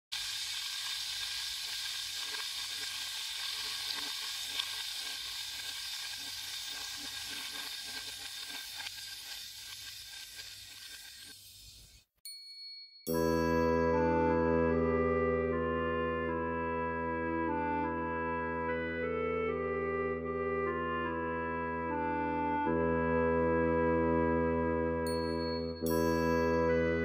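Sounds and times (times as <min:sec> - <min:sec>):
steady hiss with faint crackle: 0:00.2 - 0:12.0.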